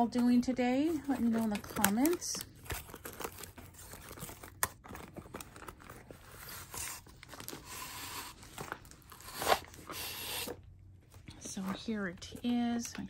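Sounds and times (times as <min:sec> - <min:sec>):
plastic shrink wrap crinkling: 0:00.0 - 0:13.0
cardboard rustling: 0:00.1 - 0:10.6.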